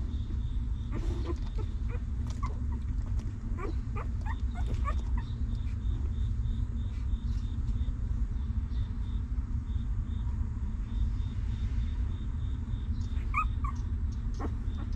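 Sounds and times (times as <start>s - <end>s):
steady low rumble: 0.0s - 14.9s
puppies whimpering: 0.9s - 5.8s, 13.2s - 14.9s.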